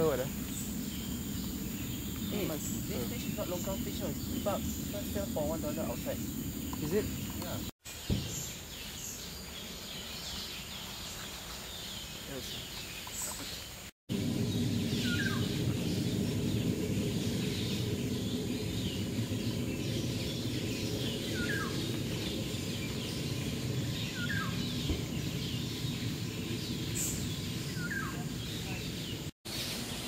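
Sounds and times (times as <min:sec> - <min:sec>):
low steady rumble: 0:00.0 - 0:07.7, 0:14.1 - 0:29.3
faint high bird chirps: 0:14.3 - 0:29.8.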